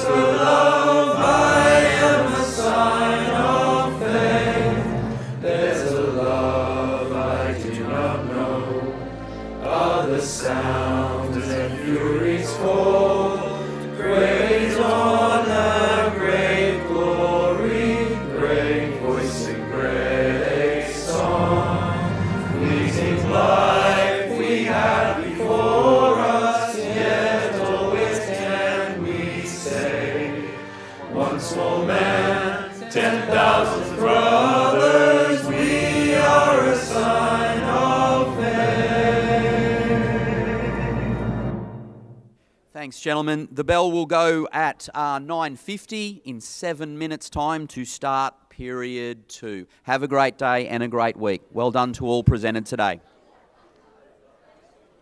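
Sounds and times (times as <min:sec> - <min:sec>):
male choir singing: 0:00.0 - 0:41.9
low accompaniment: 0:00.0 - 0:42.3.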